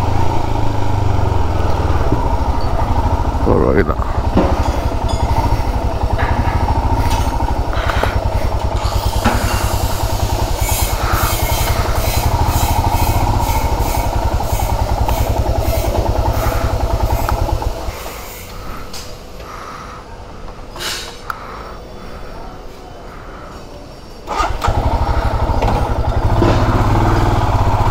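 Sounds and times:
faint street background: 0.0s - 27.9s
motorcycle engine thudding: 4.0s - 19.2s, 24.3s - 27.6s.

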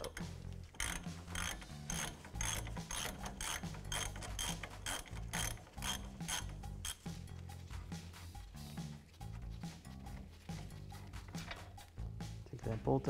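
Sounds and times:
ratchet clicking: 0.0s - 7.3s.

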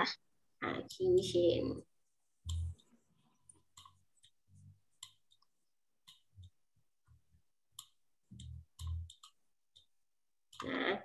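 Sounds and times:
stylus tapping on tablet screen: 2.4s - 10.8s.

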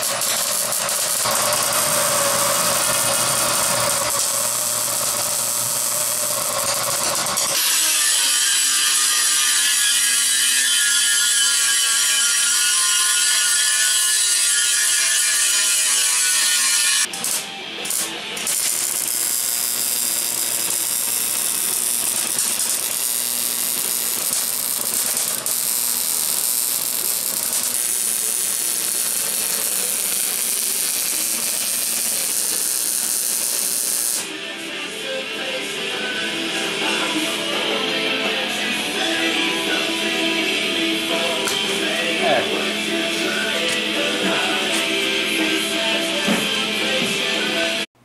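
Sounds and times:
angle grinder cutting steel: 0.0s - 34.4s
welder crackling and hissing: 0.0s - 34.4s.

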